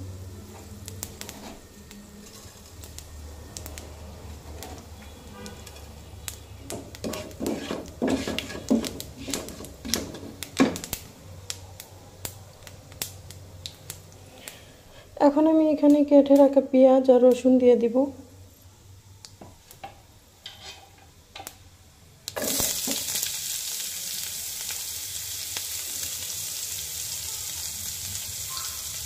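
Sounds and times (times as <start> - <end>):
seeds popping in hot oil: 0.5 - 14.7, 22.2 - 29.0
spatula stirring seeds: 6.7 - 10.4.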